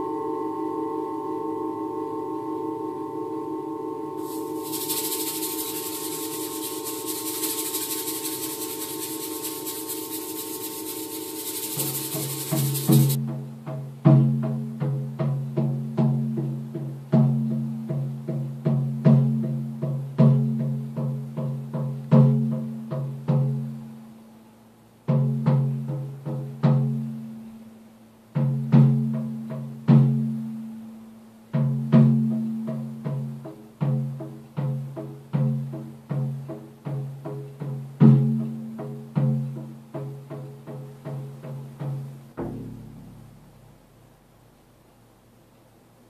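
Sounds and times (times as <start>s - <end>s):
frame drum booming: 31.6s - 44.0s.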